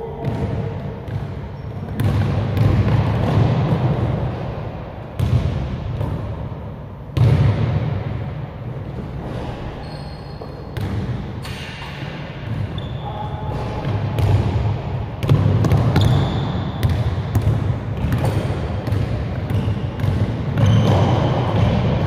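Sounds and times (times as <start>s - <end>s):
basketball bouncing on gym floor: 0.2s - 4.4s, 5.2s - 6.5s, 7.1s - 8.3s, 8.9s - 11.7s, 12.4s - 22.0s
sneaker squeaks: 1.5s - 2.2s, 9.2s - 14.3s, 15.6s - 17.0s, 19.5s - 21.8s.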